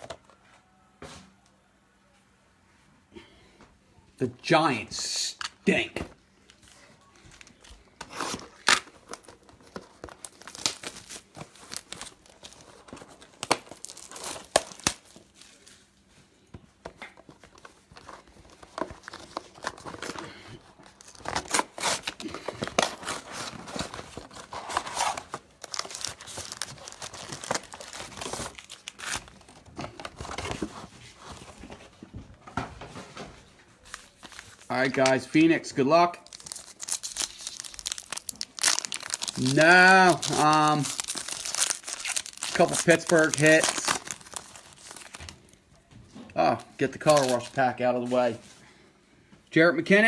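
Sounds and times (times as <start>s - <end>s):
foil packs crinkling: 6.5s - 15.9s, 17.3s - 31.7s, 36.1s - 45.6s, 46.5s - 48.4s.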